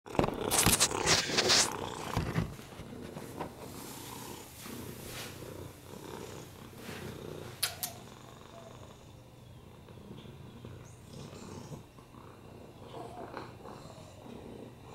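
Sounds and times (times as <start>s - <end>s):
rustling and handling noise: 0.1s - 5.8s
cat purring: 0.1s - 14.9s
short clicks: 7.6s - 8.0s.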